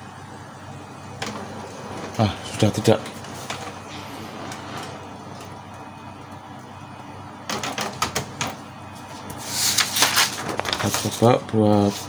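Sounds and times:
printer motor hum: 0.0s - 12.0s
paper rustling: 9.1s - 12.0s.

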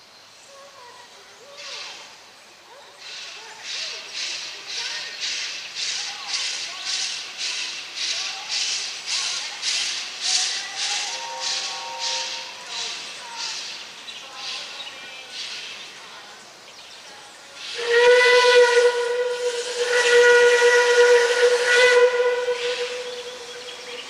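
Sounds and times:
steam locomotive exhaust chuffs: 3.0s - 13.8s, 17.6s - 24.0s
steam whistle: 11.0s - 12.6s, 17.6s - 24.0s.

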